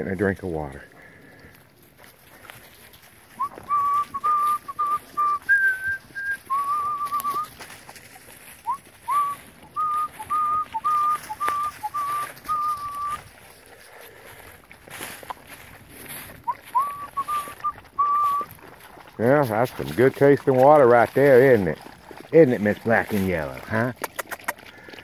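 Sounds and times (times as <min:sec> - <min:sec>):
person whistling a tune: 0:03.4 - 0:07.5, 0:08.6 - 0:13.2, 0:16.5 - 0:18.5.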